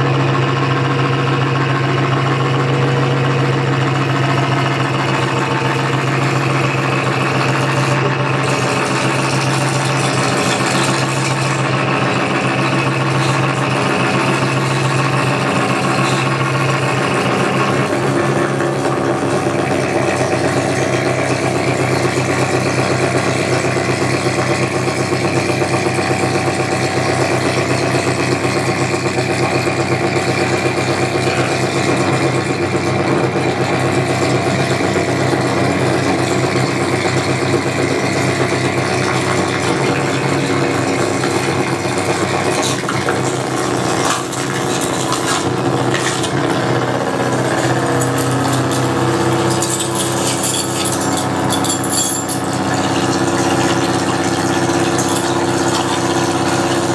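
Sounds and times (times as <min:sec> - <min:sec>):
electronic drone music: 0:01.1 - 0:09.8.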